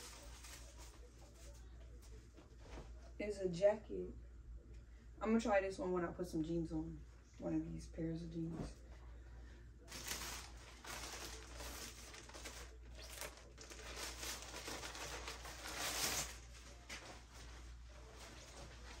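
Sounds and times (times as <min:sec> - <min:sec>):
packaging and clothes rustling: 0:00.0 - 0:02.8, 0:09.9 - 0:19.0.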